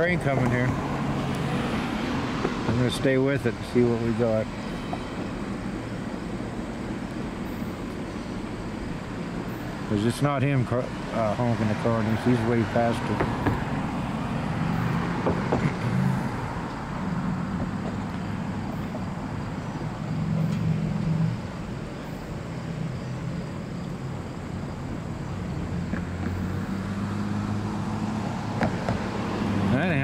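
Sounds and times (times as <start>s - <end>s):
train wheels rumbling on rail: 0.0s - 9.8s.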